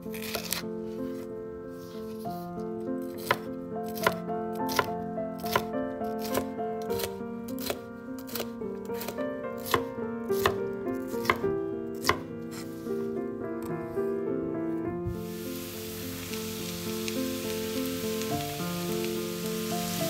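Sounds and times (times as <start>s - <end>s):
background music: 0.0s - 20.0s
knife chopping on wooden board: 3.2s - 10.6s, 11.2s - 11.4s, 12.0s - 12.6s.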